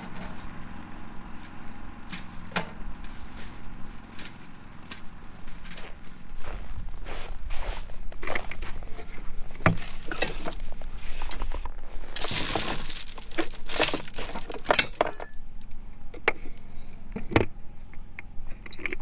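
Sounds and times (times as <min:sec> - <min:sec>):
generator humming: 0:00.0 - 0:18.9
items knocking and rustling: 0:08.1 - 0:15.4.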